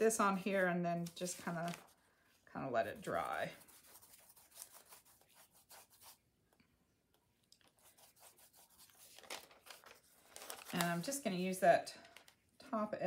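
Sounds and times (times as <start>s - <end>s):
brush scratching on cardboard: 3.0s - 6.2s, 7.7s - 9.1s.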